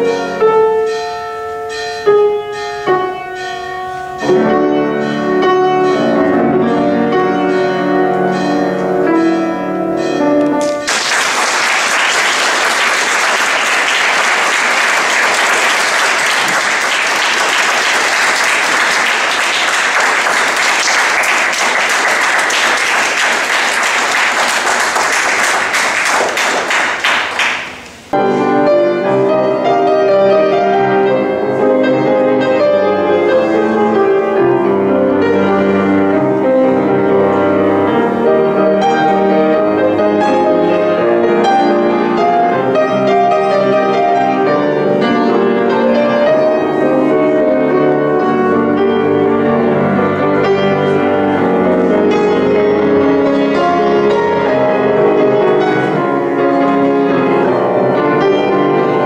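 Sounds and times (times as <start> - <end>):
grand piano solo: 0.0 - 59.0
audience applauding: 10.6 - 28.1.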